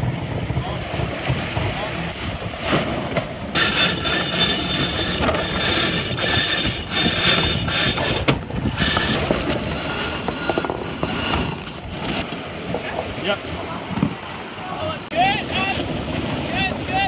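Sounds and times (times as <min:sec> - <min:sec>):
winches ratcheting and whirring: 0:03.6 - 0:11.8.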